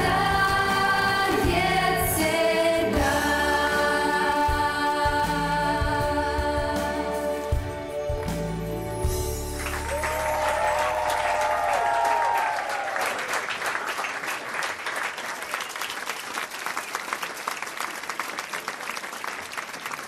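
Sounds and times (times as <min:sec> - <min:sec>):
audience clapping: 0:00.0 - 0:01.8, 0:09.5 - 0:20.0.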